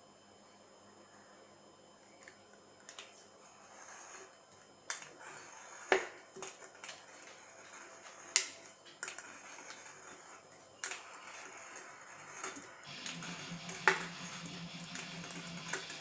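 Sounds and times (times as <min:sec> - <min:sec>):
blade scraping a metal can: 0:05.2 - 0:16.0.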